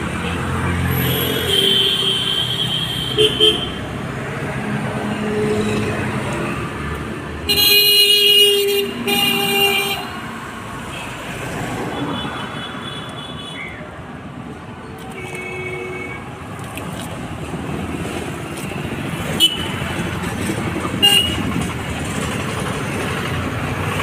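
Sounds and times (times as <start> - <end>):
road traffic passing: 0.0 - 24.0
vehicle horn blasts: 1.1 - 3.8, 7.5 - 10.2, 19.4 - 19.8, 21.0 - 21.5.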